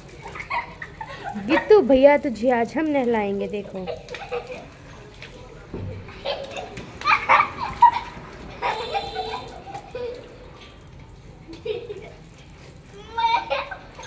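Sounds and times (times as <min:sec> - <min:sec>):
water splashing on stone floor: 0:00.0 - 0:14.0
water spraying from a hose: 0:00.0 - 0:14.0
children calling out: 0:12.8 - 0:14.0.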